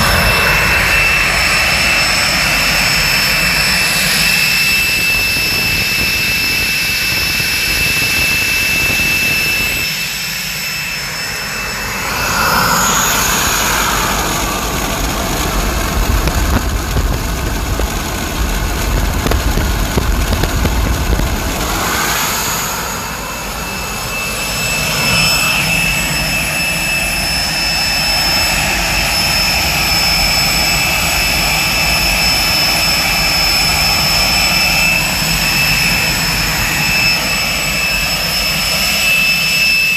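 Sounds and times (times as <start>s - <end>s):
jet engine roar: 0.0s - 39.9s
turbine whine: 0.0s - 39.9s.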